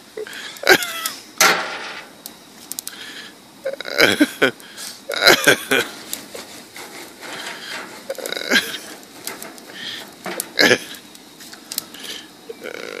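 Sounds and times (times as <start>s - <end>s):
man's wordless vocal bursts: 8.1s - 8.8s.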